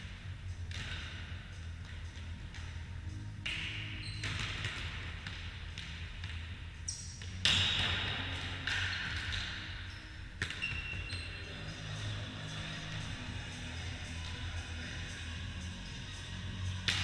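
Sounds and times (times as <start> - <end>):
volleyball slaps echoing in hall: 0.6 - 2.8, 3.4 - 11.3, 16.7 - 17.0.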